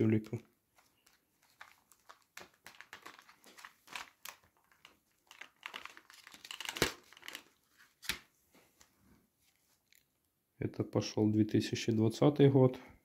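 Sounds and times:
plastic sheets crinkling: 0.7s - 8.3s.

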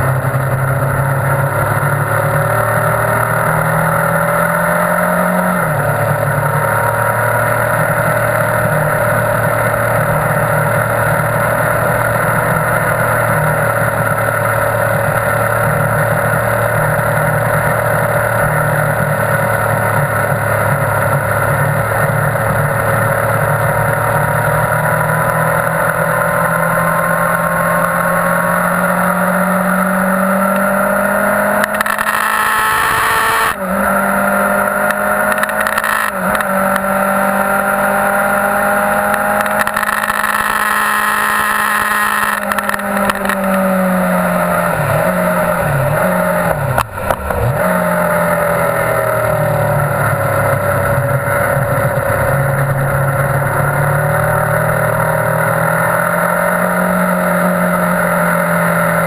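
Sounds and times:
motorcycle engine at high revs: 0.0s - 59.0s.

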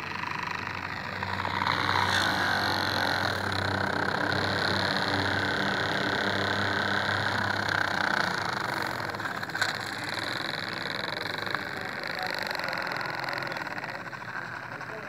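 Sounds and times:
toy tractor motor whirring: 0.0s - 15.0s.

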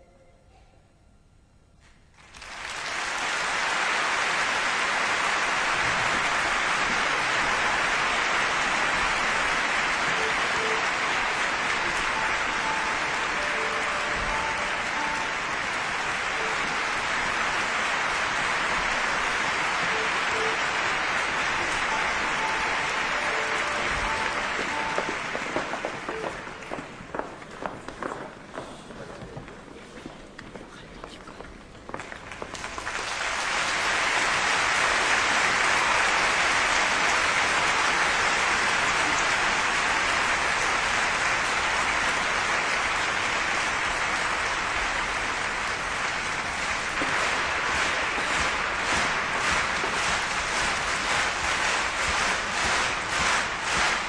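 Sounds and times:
audience applauding: 2.1s - 28.4s, 31.9s - 54.0s.

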